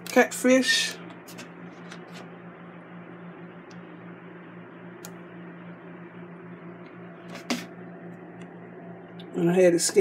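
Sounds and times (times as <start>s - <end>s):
low hum with fan hiss: 0.0s - 10.0s.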